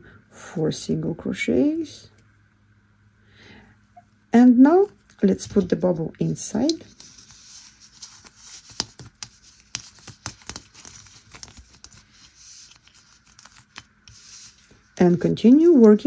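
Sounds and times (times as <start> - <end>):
yarn rustling against plastic: 4.7 - 16.0.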